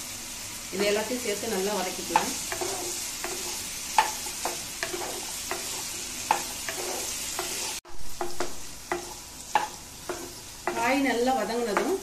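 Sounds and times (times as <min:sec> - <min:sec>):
vegetables sizzling in oil: 0:00.0 - 0:12.0
spatula scraping a pan: 0:02.1 - 0:12.0.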